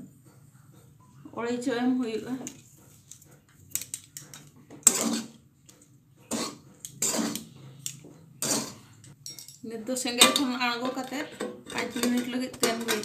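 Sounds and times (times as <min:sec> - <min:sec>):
spatula scraping pan: 0:04.2 - 0:09.2, 0:10.1 - 0:13.0.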